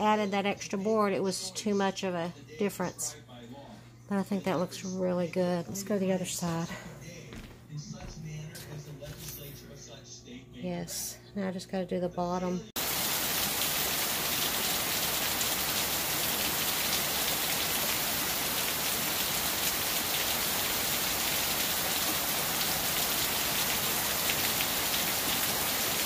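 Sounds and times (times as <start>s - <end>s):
heavy rain falling: 12.8s - 26.0s
rainwater streaming off roof: 12.8s - 26.0s.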